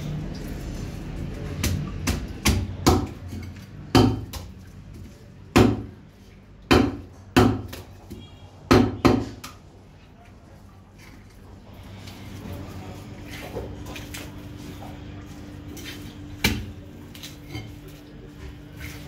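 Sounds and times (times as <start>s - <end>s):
cleaver chopping on wood: 3.9s - 4.5s, 5.5s - 5.9s, 6.7s - 9.4s.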